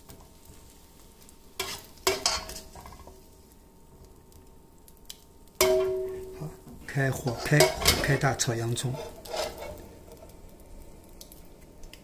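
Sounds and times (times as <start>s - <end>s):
faint oil sizzle: 0.0s - 12.0s
metal ladle knocking in wok: 5.6s - 6.4s.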